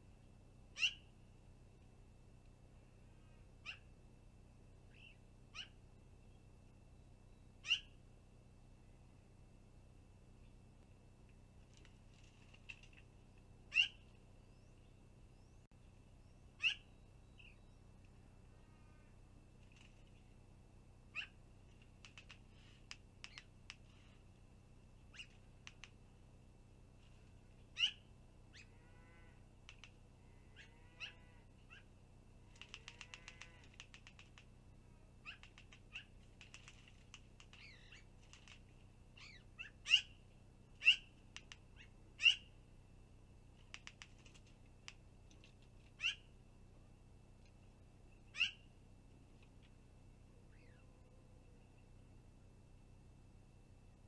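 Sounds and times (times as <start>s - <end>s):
harsh bird calls: 0.8s - 1.1s, 7.6s - 8.0s, 13.7s - 14.8s, 16.3s - 17.8s, 27.7s - 28.8s, 29.7s - 31.9s, 37.5s - 38.6s, 39.2s - 40.2s, 40.8s - 41.1s, 41.8s - 42.5s, 46.0s - 46.3s, 48.3s - 48.7s
rapid bird chatter: 13.7s - 14.1s, 16.6s - 17.6s, 21.1s - 24.2s, 25.1s - 26.0s, 32.5s - 34.5s, 35.2s - 40.2s, 40.8s - 42.5s, 43.6s - 46.3s, 48.3s - 48.6s.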